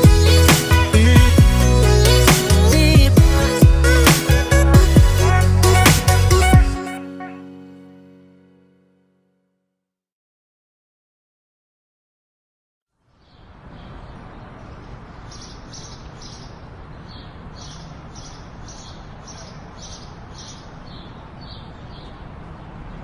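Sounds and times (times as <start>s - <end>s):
outdoor background noise: 12.9s - 23.0s
birds chirping: 13.1s - 23.0s.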